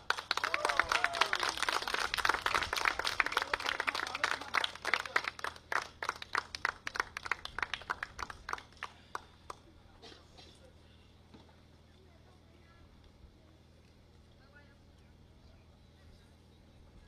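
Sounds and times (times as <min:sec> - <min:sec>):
crowd applause: 0:00.0 - 0:09.6.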